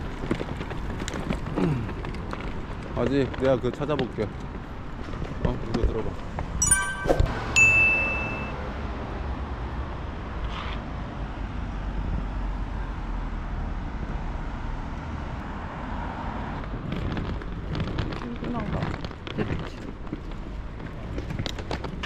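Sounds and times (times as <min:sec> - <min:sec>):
high steady beep: 0:06.6 - 0:08.6.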